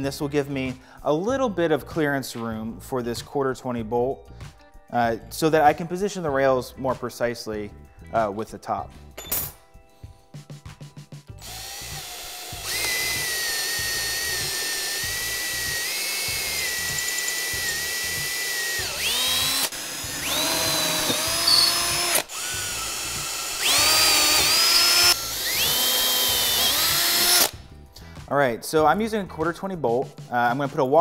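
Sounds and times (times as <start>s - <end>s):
drill chuck ratcheting clicks: 11.4s - 27.5s
drill motor whining: 11.4s - 27.5s.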